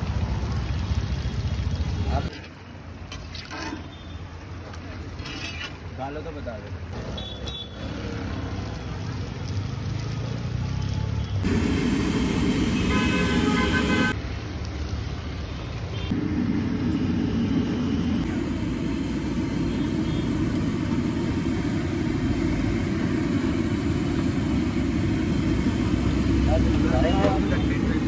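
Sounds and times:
busy street traffic rumble: 0.0 - 28.0
vehicle horn tooting: 12.7 - 14.2.

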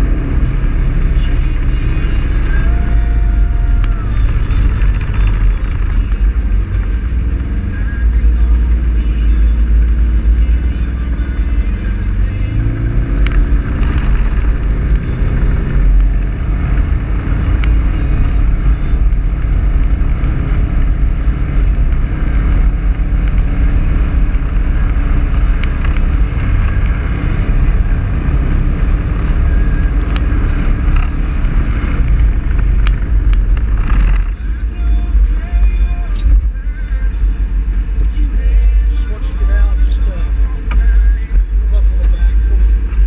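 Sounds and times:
road and wind noise: 0.0 - 43.0
vehicle engine rumble: 0.0 - 43.0
stones ticking: 3.7 - 6.9, 13.1 - 27.9, 29.2 - 36.4.

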